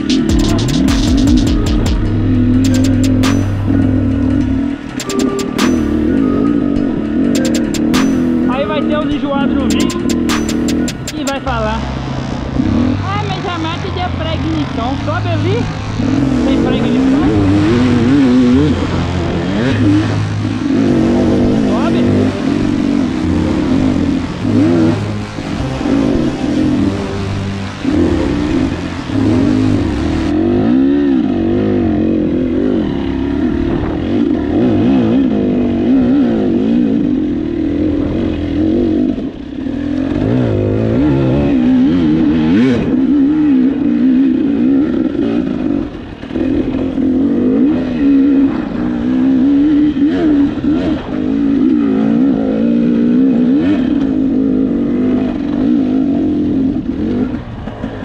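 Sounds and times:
dirt bike engine revving: 0.0s - 58.0s
sharp knock: 0.1s - 3.8s, 4.9s - 6.1s, 7.4s - 8.5s, 9.7s - 11.3s.

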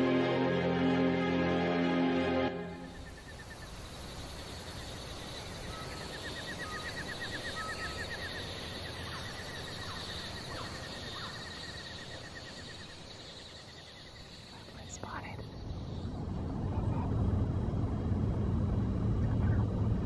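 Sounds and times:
upswept bird calls: 2.9s - 16.2s.

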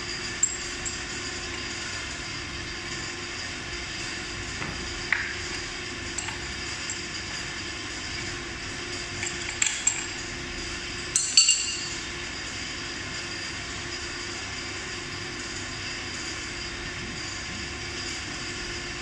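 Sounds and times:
steady low hum: 0.0s - 19.0s
metal tool clinks: 11.2s - 11.9s.

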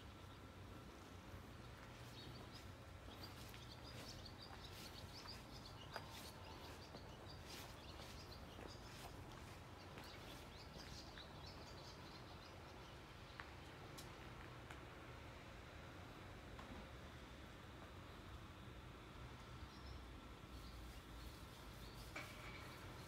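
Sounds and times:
small birds chirping: 0.0s - 14.1s, 19.4s - 23.0s.

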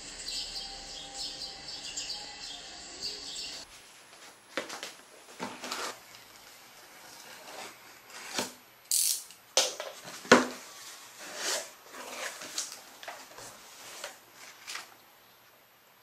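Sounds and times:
paper rustling: 3.6s - 8.6s, 9.9s - 15.0s
cardboard flaps scraping: 4.6s - 8.6s, 10.0s - 14.9s.

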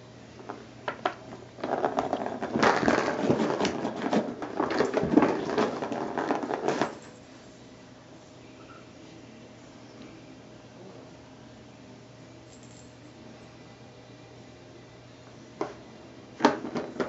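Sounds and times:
ball rattling and scraping: 0.4s - 7.3s, 16.4s - 17.0s.

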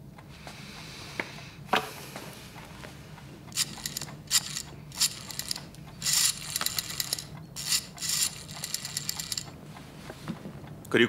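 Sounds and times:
rotary dial ratcheting clicks: 3.5s - 9.6s.

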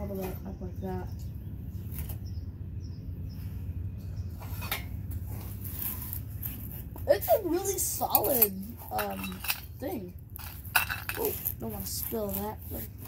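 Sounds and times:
metal tools clicking: 8.0s - 9.8s.

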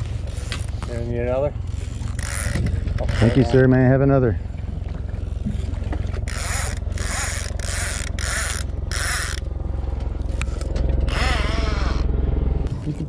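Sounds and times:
boat motor hum: 0.0s - 13.0s
fishing reel clicker ratcheting: 1.7s - 3.4s, 6.3s - 9.5s.

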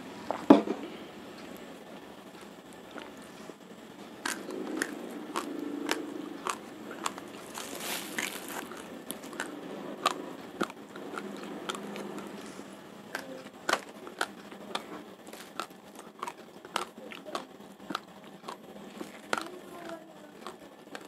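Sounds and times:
raw rice crunching in mouth: 4.2s - 19.6s.

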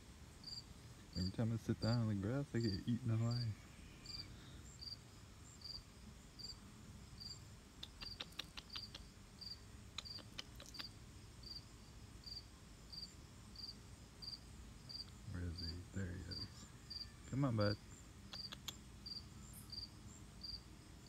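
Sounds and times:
cricket chirping: 0.0s - 21.0s
sharp clicks: 7.8s - 9.0s, 10.0s - 10.9s, 18.3s - 18.8s.

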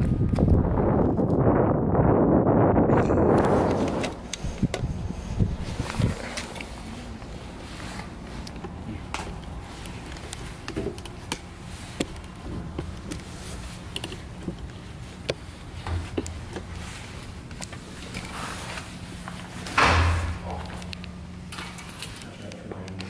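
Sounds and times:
steady low hum: 0.0s - 23.0s
footsteps on steel ladder: 5.6s - 23.0s.

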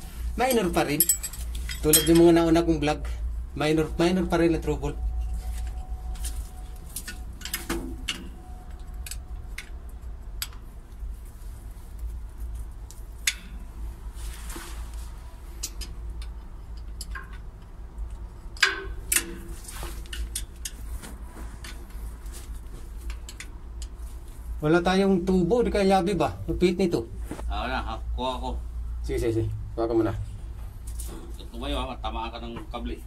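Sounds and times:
steady low rumble: 0.0s - 14.2s, 23.6s - 33.0s.

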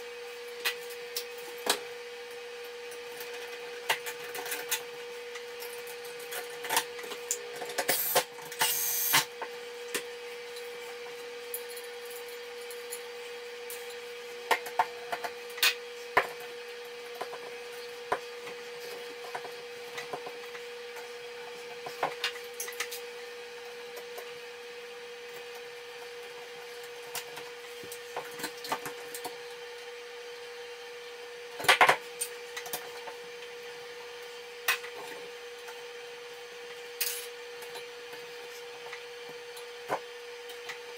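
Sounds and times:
steady hum: 6.1s - 11.0s.

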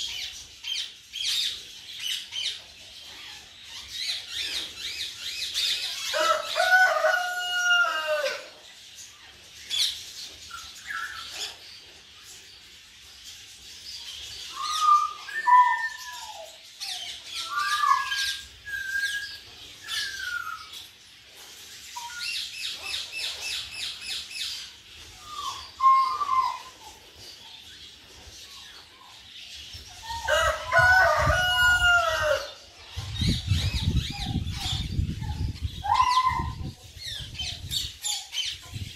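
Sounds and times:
parakeets squawking and chirping: 13.6s - 38.9s.

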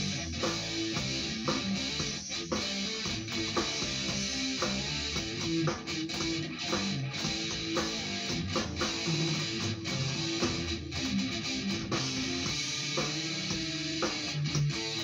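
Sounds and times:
guitar picking and strumming: 0.0s - 15.0s.

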